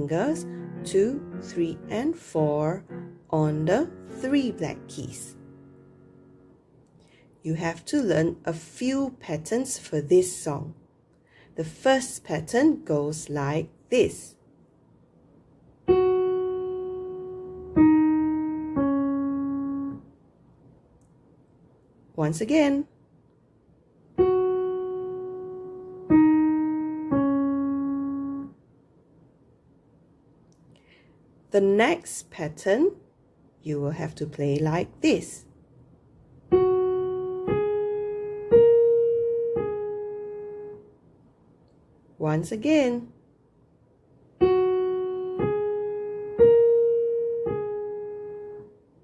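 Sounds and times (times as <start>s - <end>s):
piano notes: 0.0s - 6.8s, 15.8s - 20.2s, 24.1s - 28.6s, 36.4s - 41.0s, 44.4s - 48.9s.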